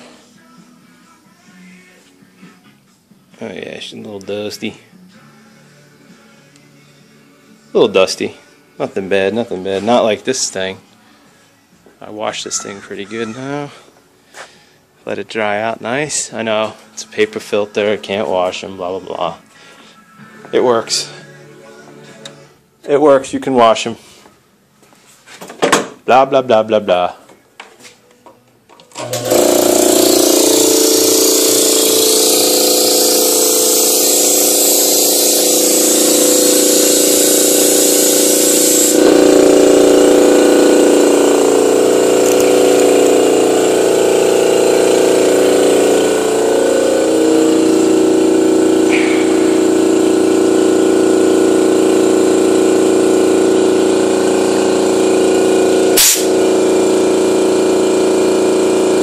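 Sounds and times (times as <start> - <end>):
air compressor humming: 7.8 - 23.0, 28.7 - 59.0
compressor hiss: 29.2 - 59.0
short sharp burst: 56.0 - 56.4.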